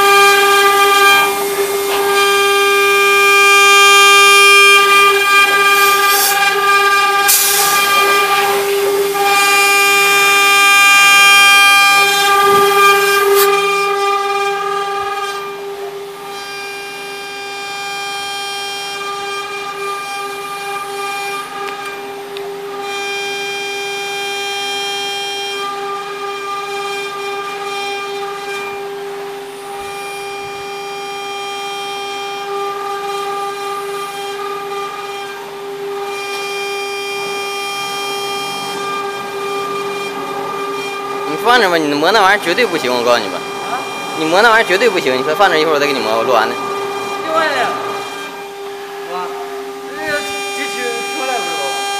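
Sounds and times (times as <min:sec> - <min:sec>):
engraving spindle whine: 0:00.0 - 0:51.9
cutter hissing on metal plate: 0:04.4 - 0:15.5.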